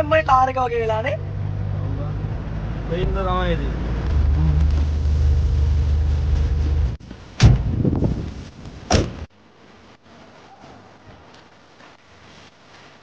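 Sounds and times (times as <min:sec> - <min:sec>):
engine and road noise drone: 0:00.0 - 0:07.5
faint outdoor background: 0:00.0 - 0:13.0
loud thump: 0:07.4 - 0:08.1, 0:08.9 - 0:09.3.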